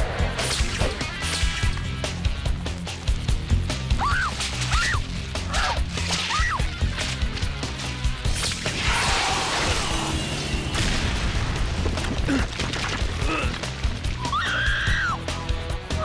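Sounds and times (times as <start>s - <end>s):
crash and rumble of debris: 4.4s - 14.2s.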